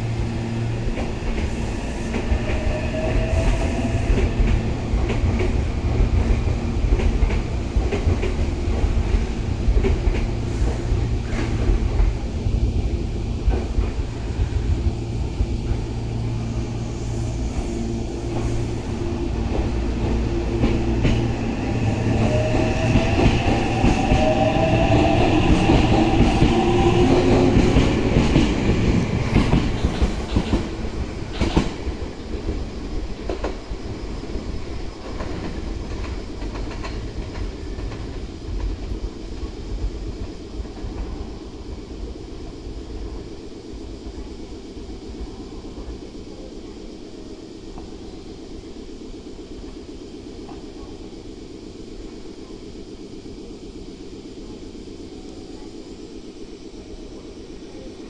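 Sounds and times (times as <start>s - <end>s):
traction motors whining: 0.0s - 37.1s
electric train humming: 0.0s - 58.0s.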